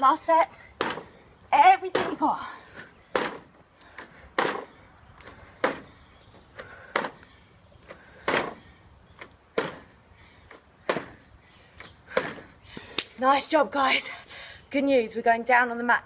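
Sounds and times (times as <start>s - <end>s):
feet landing on wooden deck: 0.8s - 1.2s, 1.9s - 12.5s.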